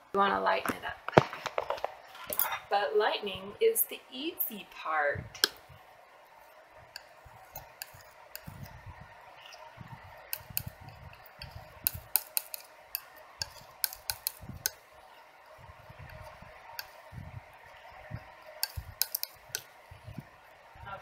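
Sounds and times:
painting knife scraping paint: 7.0s - 8.8s, 10.3s - 14.8s
blade clicking on palette: 10.3s - 14.8s, 18.6s - 19.7s.

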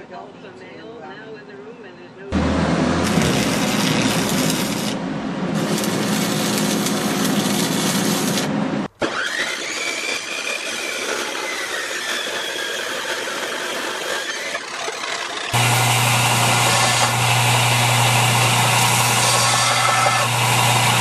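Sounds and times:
low electrical hum: 2.2s - 8.9s
electric arc welding crackle: 2.9s - 8.6s, 9.6s - 21.0s
chop saw grinding through steel: 5.6s - 21.0s.

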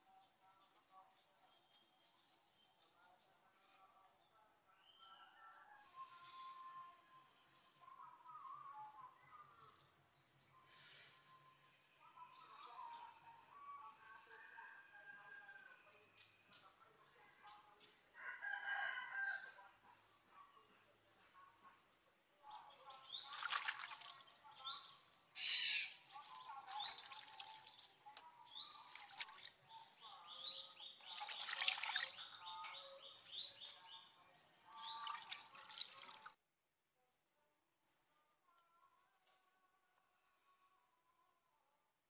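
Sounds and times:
birds singing whistled notes: 6.0s - 6.8s, 24.6s - 27.1s.

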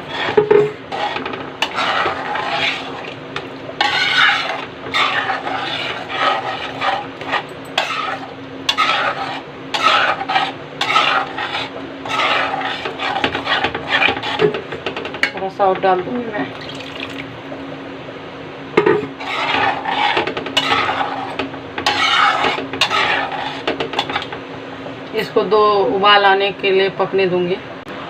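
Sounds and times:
metal spatula scraping a pan: 0.0s - 15.1s, 19.0s - 24.4s.

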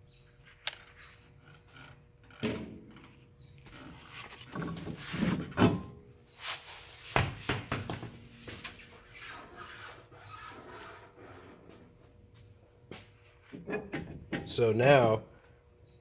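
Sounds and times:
rubbing and scraping: 3.6s - 5.5s.

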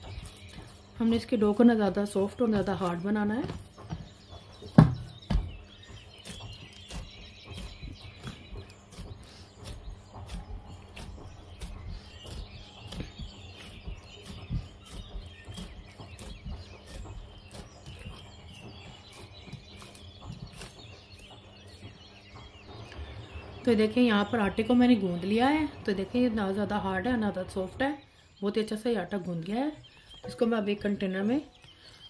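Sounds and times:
hands kneading dough: 0.0s - 23.2s.

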